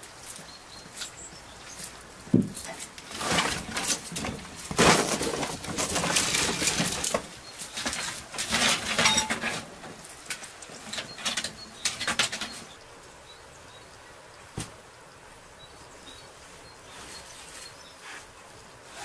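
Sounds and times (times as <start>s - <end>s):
dry branches rattling and snapping: 1.8s - 12.7s.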